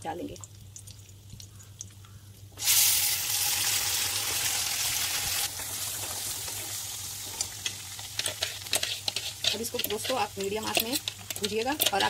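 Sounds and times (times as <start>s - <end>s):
paste sizzling in hot oil: 2.6s - 12.0s
spatula stirring paste: 7.6s - 12.0s.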